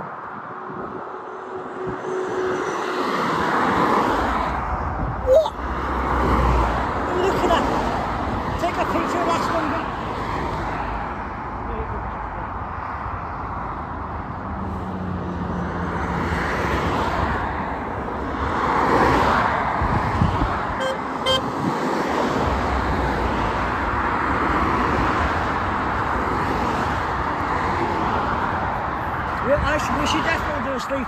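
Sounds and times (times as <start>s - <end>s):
road traffic passing: 0.0s - 31.0s
car horn toots: 20.8s - 21.5s.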